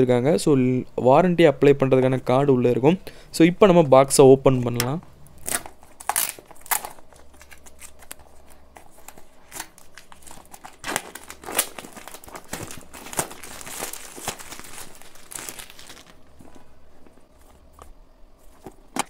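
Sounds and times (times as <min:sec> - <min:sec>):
plastic wrap crinkling: 0:05.4 - 0:16.6.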